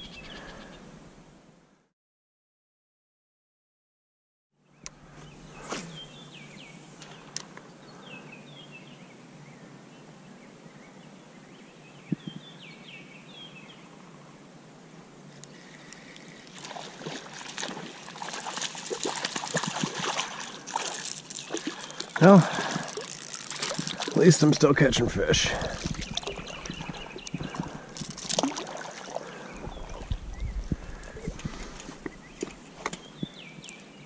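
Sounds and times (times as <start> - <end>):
river hiss: 5.0 - 8.8, 12.7 - 24.8
fish splashing in water: 15.8 - 24.4, 25.6 - 30.1
bird chirps: 25.7 - 27.8.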